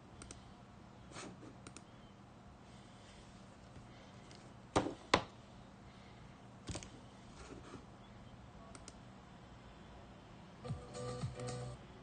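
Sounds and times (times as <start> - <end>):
computer mouse clicks: 0.2 - 0.4, 1.6 - 1.9.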